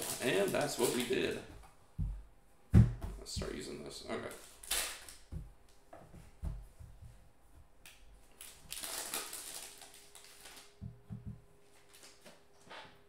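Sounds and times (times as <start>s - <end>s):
foil wrapper crinkling: 0.0s - 1.4s, 4.2s - 5.3s, 8.3s - 10.8s, 11.7s - 12.4s.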